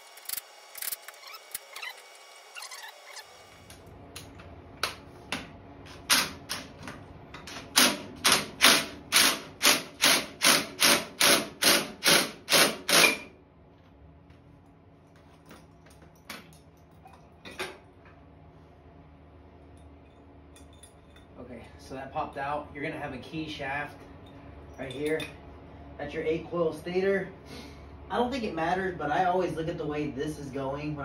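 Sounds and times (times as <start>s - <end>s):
impact driver hammering: 7.7s - 13.3s
light metal clinks: 19.7s - 21.4s.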